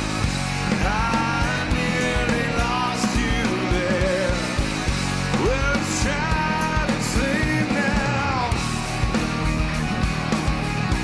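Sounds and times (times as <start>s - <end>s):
rock band playing: 0.0s - 11.0s
steady drum beat: 0.0s - 11.0s
man singing into microphone: 0.7s - 4.7s, 5.3s - 8.6s.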